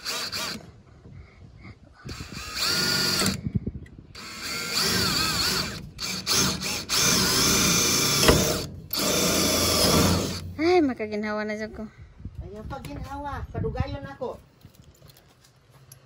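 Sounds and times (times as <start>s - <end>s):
cordless drill whining: 0.0s - 0.8s, 2.0s - 10.4s.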